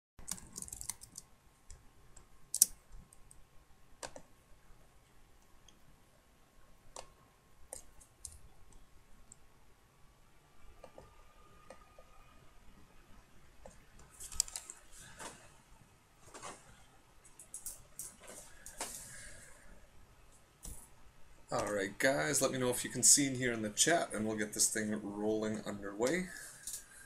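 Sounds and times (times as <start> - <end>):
sharp clicks: 0.2 - 3.4
faint high hum: 0.3 - 27.0.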